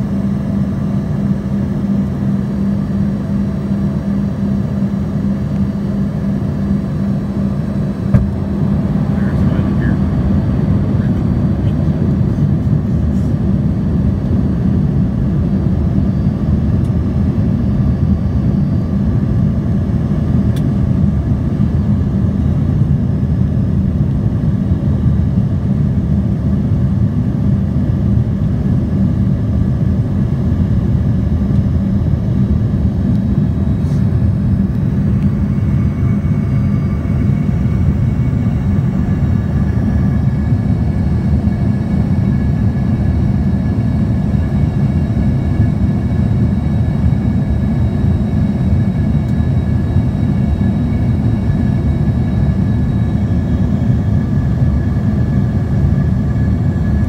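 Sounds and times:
airliner cabin engine roar: 0.0s - 57.0s.

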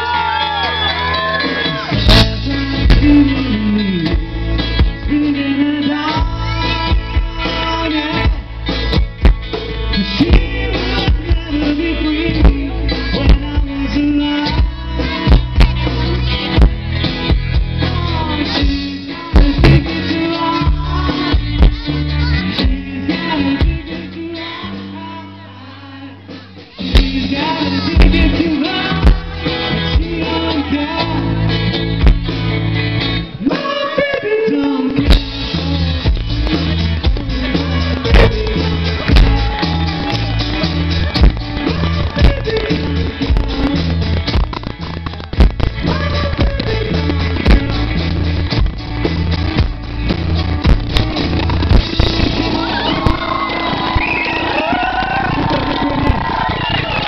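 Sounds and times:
person singing: 0.0s - 16.6s, 17.7s - 31.8s, 33.4s - 48.2s
rock band playing: 0.0s - 57.0s.

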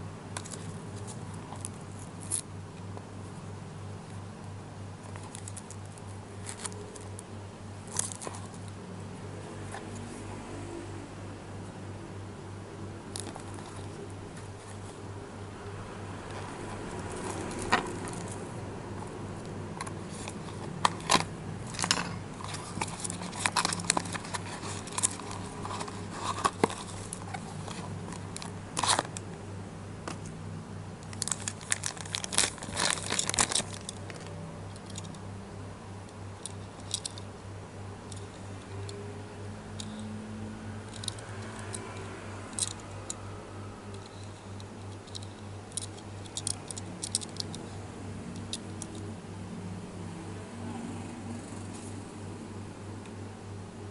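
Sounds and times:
plastic bag crinkling: 31.1s - 34.3s.

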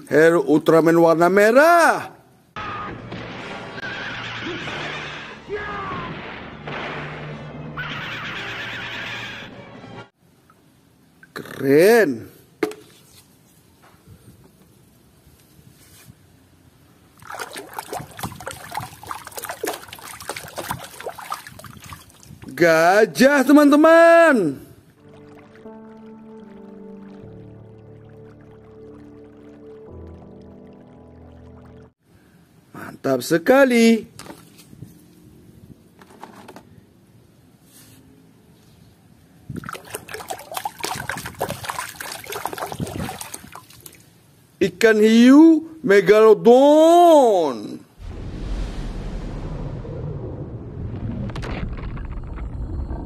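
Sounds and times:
toy splashing in muddy water: 17.2s - 22.5s, 39.6s - 44.1s.

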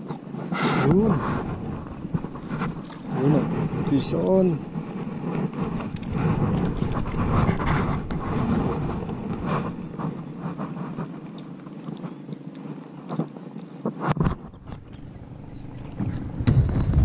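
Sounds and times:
wind buffeting microphone: 0.0s - 11.3s, 14.1s - 17.0s
small clicks and crackles: 0.0s - 16.5s
gloved hands rustling: 1.1s - 13.6s.

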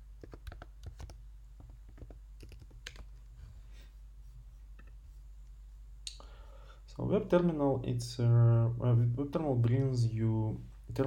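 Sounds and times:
keyboard typing: 0.2s - 1.2s, 1.9s - 3.1s.

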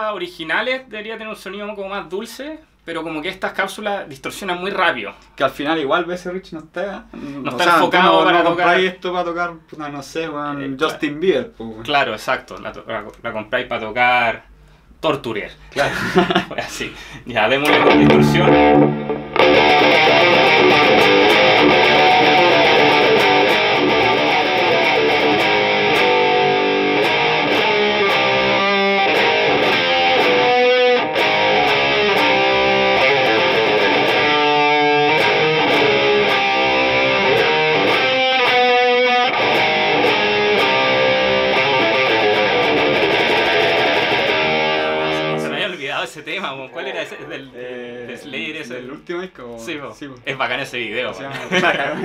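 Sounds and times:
distorted electric guitar riffs: 17.7s - 45.6s.

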